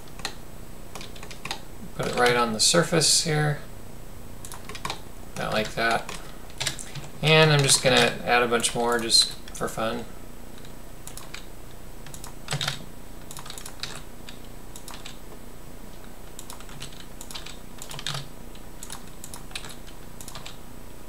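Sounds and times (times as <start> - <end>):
keyboard keys clicking: 0.0 - 2.4, 4.4 - 9.6, 10.6 - 15.2, 16.3 - 20.6.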